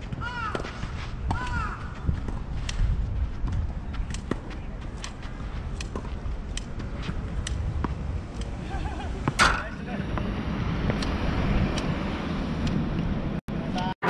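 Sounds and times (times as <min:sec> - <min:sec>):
shoes on court: 0:00.0 - 0:09.4
steady low rumble: 0:00.0 - 0:13.9
racquets striking tennis ball: 0:00.1 - 0:08.6.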